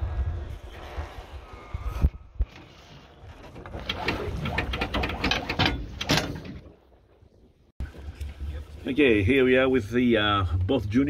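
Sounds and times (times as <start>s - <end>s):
anchor chain clattering: 3.4s - 6.7s.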